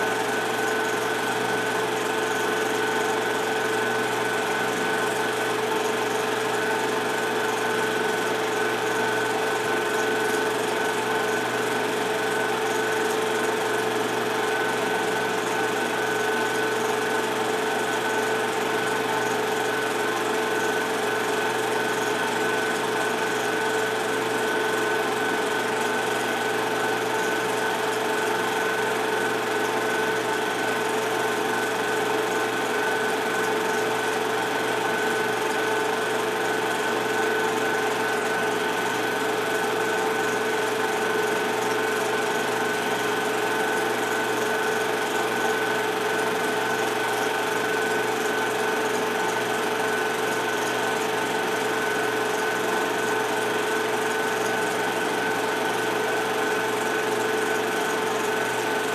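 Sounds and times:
film projector whirring: 0.0s - 58.9s.

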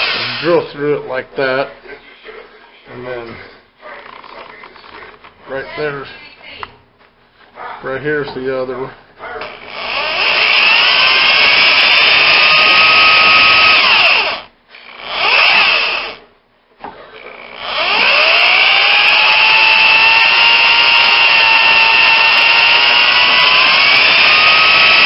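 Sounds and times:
drill whining into steel: 0.0s - 0.7s, 9.4s - 16.2s, 17.2s - 25.0s.

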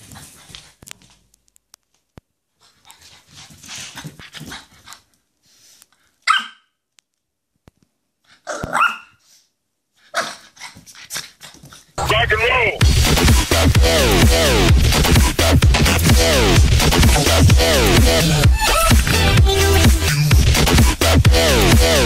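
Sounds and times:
dog barking: 6.2s - 6.7s, 8.5s - 9.2s.

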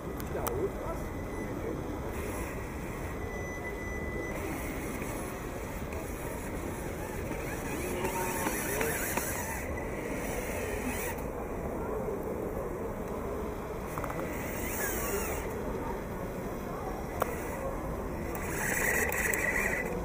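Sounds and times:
model truck motor and gears: 0.0s - 11.4s, 13.8s - 16.4s, 17.0s - 20.0s.

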